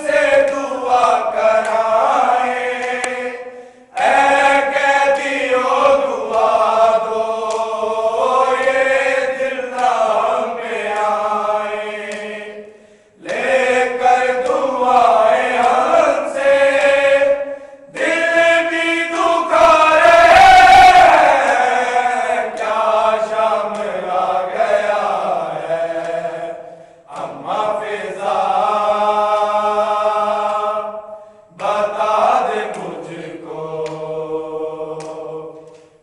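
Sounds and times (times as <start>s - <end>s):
men chanting in unison: 0.0s - 36.0s.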